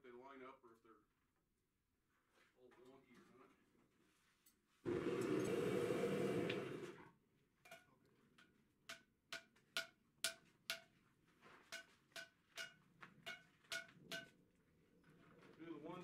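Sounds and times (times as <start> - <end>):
hammer striking hot iron: 11.7 - 14.3.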